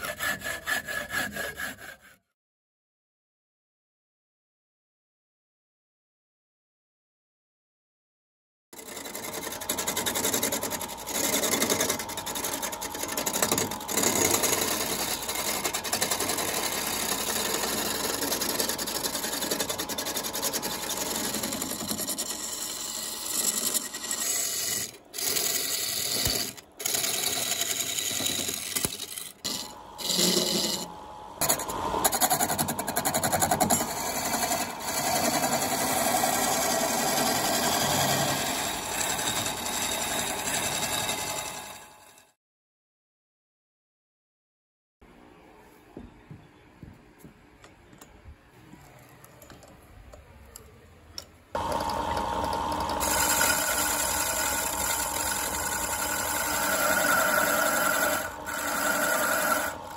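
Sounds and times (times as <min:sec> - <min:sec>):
chisel cutting wood on lathe: 0:00.0 - 0:02.2, 0:08.8 - 0:42.3, 0:51.6 - 0:59.9
faint motor hum: 0:09.0 - 0:42.2, 0:45.0 - 0:59.9.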